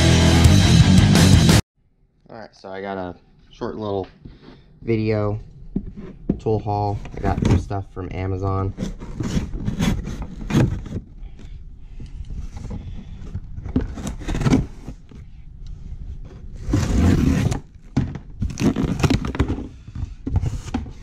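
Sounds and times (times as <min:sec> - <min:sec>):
cardboard scraping and rustling: 0:05.8 - 0:07.8, 0:08.5 - 0:11.1, 0:12.4 - 0:15.2, 0:16.1 - 0:21.0.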